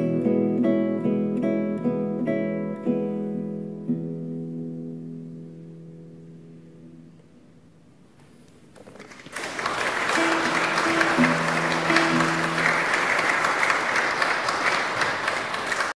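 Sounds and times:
classical guitar notes: 0.0 - 9.0, 9.9 - 13.6
audience applauding: 8.8 - 16.0.

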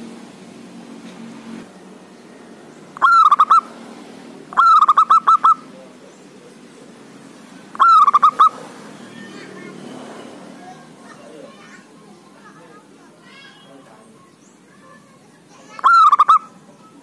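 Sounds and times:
dove cooing: 2.9 - 3.8, 4.4 - 7.0, 7.7 - 9.4, 15.7 - 17.0.

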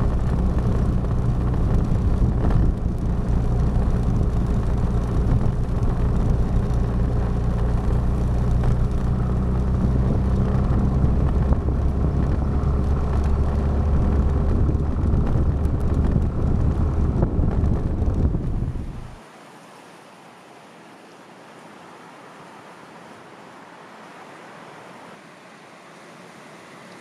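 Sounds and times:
scooter engine running: 0.0 - 19.2
road and wind noise: 0.0 - 27.0.

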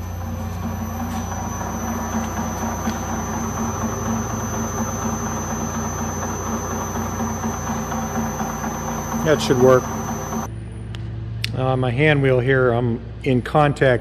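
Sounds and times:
metal lathe motor humming: 0.0 - 10.5.

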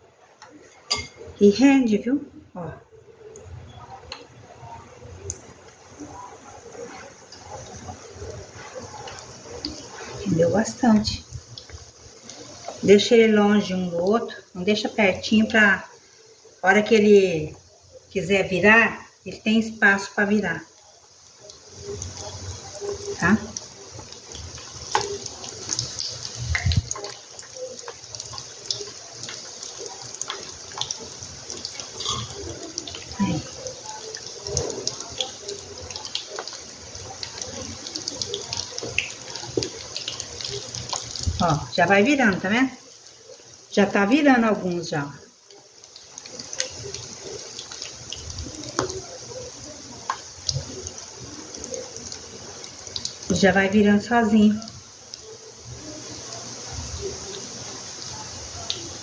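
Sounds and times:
dough deep-frying in hot oil: 0.0 - 59.0.

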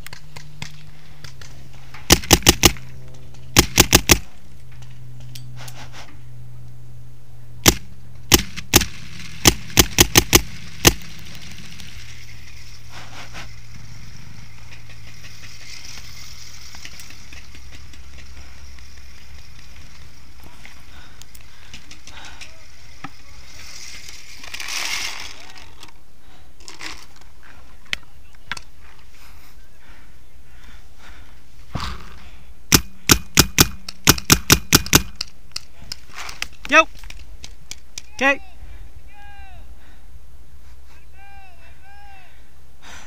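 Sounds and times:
paintball marker shots: 2.1 - 2.8, 3.5 - 4.3, 7.6 - 11.5, 32.7 - 35.3.

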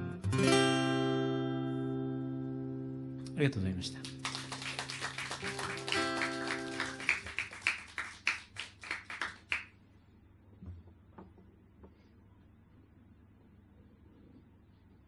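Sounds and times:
acoustic guitar chord: 0.0 - 3.2.

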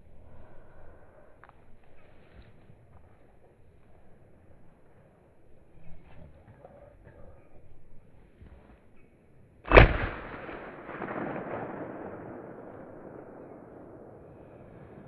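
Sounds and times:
rifle shot echoing: 9.7 - 15.0.

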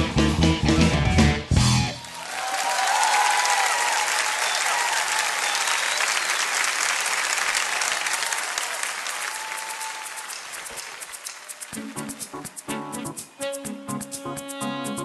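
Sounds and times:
audience applauding: 1.8 - 12.7.

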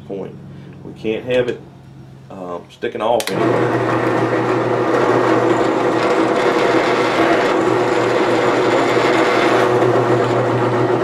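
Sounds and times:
drill press drilling wood: 3.2 - 11.0.

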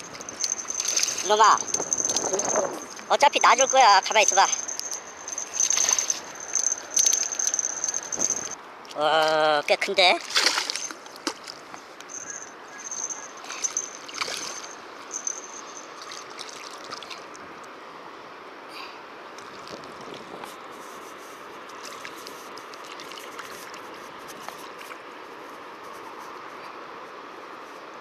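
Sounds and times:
fish thrashing and splashing: 0.0 - 8.6, 10.2 - 17.4
river water rushing: 0.0 - 19.6, 21.5 - 25.4.

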